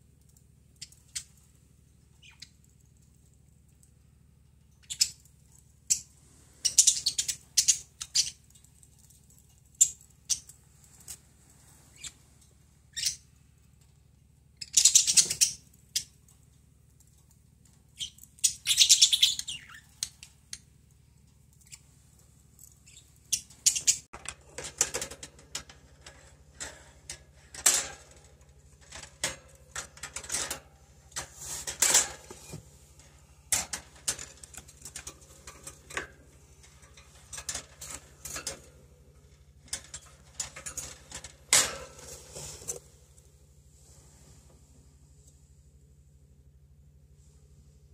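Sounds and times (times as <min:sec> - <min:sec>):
budgerigars chirping: 0:18.0 - 0:19.9
light clicks and scratches: 0:19.5 - 0:43.2.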